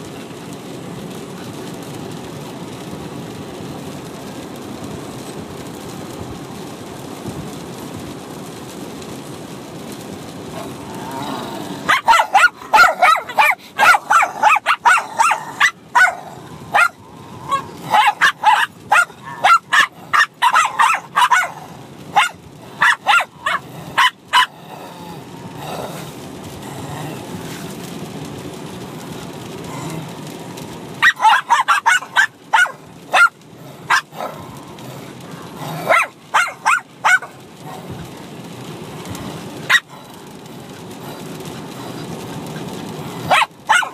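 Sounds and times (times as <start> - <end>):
low steady rumble: 0.0 - 43.8
dogs barking and yapping: 9.8 - 43.9.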